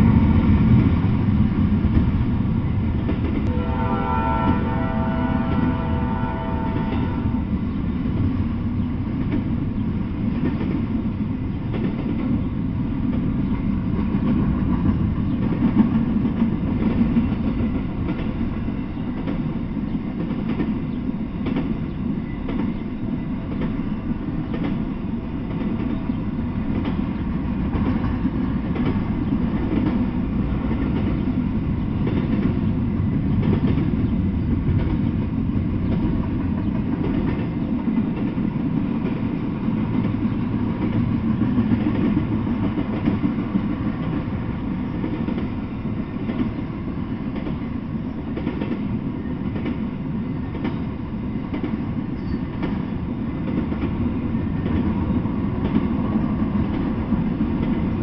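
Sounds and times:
clickety-clack over rail joints: 0.0 - 3.6, 6.7 - 58.0
train wheels rumbling on rails: 0.0 - 58.0.

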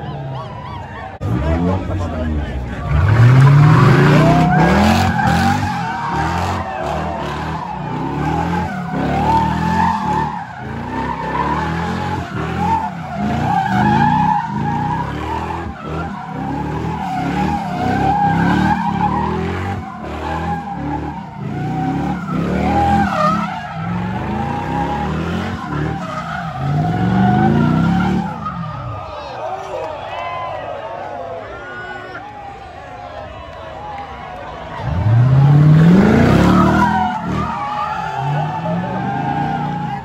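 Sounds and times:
car engine revving: 1.2 - 29.0, 34.8 - 40.0
tyres squealing: 34.8 - 40.0.

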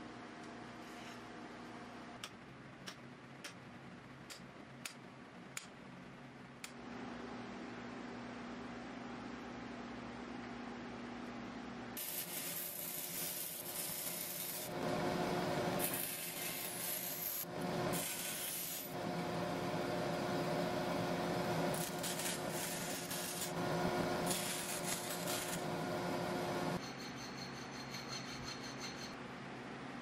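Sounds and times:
bandsaw motor hum: 12.0 - 26.8
blade rasping through metal sheet: 21.7 - 23.6.

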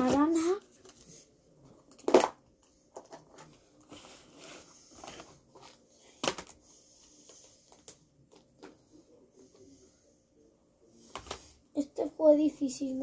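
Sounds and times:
plastic crack: 1.8 - 3.5, 6.2 - 6.6.

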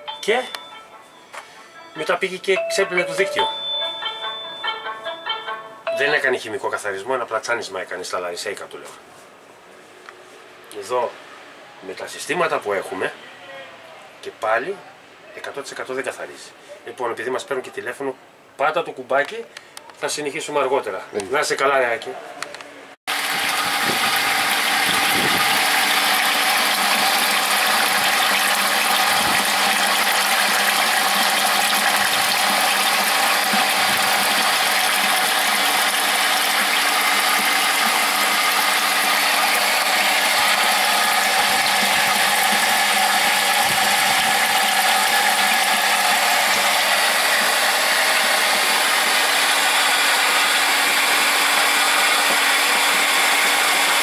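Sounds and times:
water rushing: 23.1 - 50.7
pump humming: 23.1 - 54.0.

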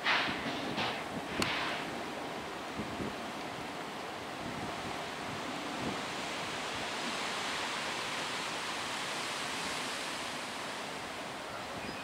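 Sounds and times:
flood water rushing: 0.0 - 12.0.

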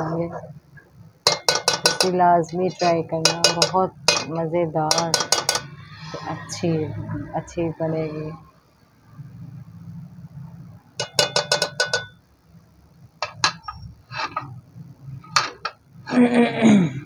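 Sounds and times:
ladle tapping metal pot: 1.2 - 5.7, 11.0 - 12.2, 13.2 - 14.4, 15.3 - 15.8.

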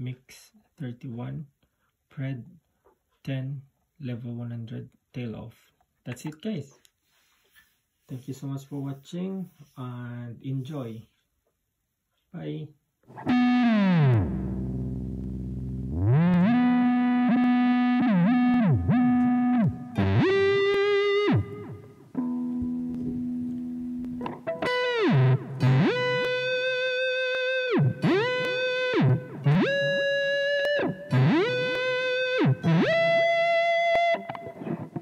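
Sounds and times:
distorted electric guitar pitch bends: 13.1 - 35.0.

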